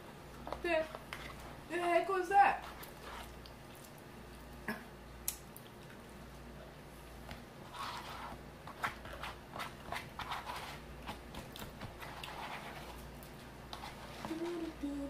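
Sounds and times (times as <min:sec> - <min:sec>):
wet chewing and smacking: 0:02.7 - 0:04.6, 0:11.0 - 0:13.9.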